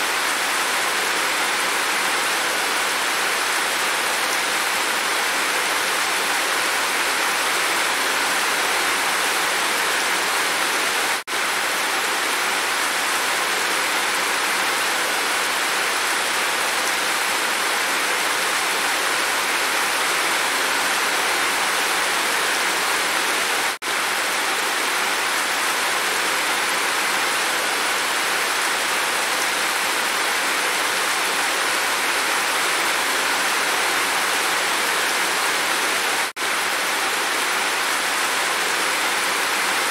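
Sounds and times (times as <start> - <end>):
heavy rain pouring off roof: 0.0 - 39.9.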